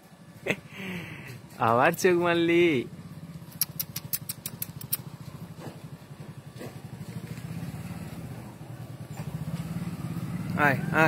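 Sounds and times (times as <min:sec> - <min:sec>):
engine idling: 0:00.0 - 0:11.0
sharp high clicks: 0:03.3 - 0:05.2.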